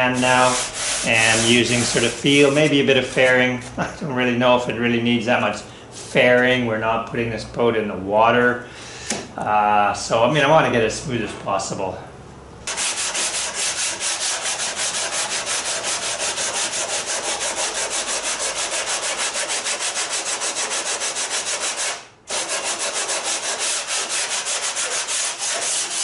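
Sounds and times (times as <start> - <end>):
sandpaper rubbing wood: 0.0 - 3.7, 12.7 - 26.0.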